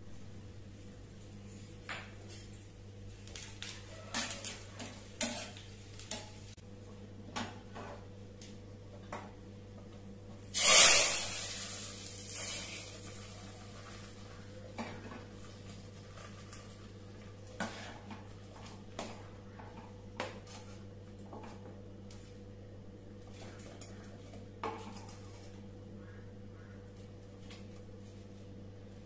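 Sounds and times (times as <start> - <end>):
loud sizzle: 10.4 - 17.4
spatula scraping a steel pan: 10.6 - 11.6.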